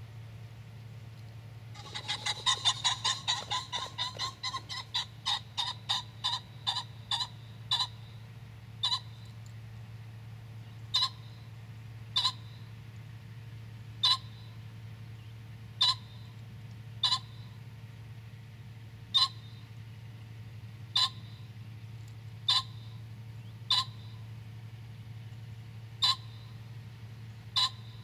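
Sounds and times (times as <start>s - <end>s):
pheasant calling: 1.7s - 8.2s, 8.8s - 9.3s, 10.6s - 12.8s, 14.0s - 14.6s, 15.2s - 16.3s, 17.0s - 17.6s, 19.1s - 19.7s, 20.9s - 21.5s, 22.4s - 24.3s, 26.0s - 26.7s, 27.3s - 28.0s.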